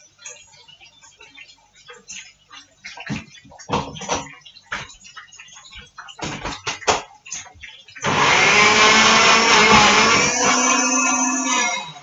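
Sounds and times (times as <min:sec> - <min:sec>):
electric blender running: 0:08.0 - 0:12.0.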